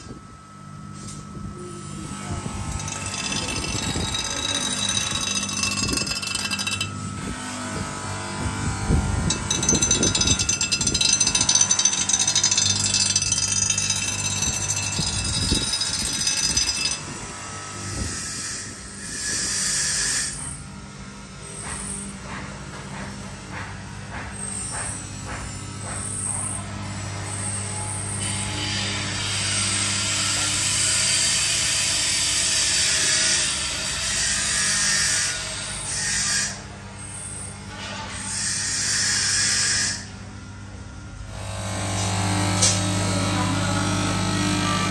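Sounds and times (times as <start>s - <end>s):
electric grinder on steel: 1.9s - 20.6s, 26.5s - 40.2s, 41.2s - 44.9s
machine rattling with fast ticks: 2.8s - 6.9s, 9.3s - 17.0s.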